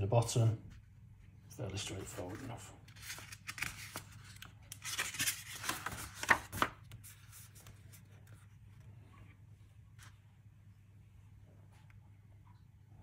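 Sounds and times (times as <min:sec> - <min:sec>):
faint paper handling: 0:01.6 - 0:10.5
paper page rustling: 0:01.8 - 0:08.9.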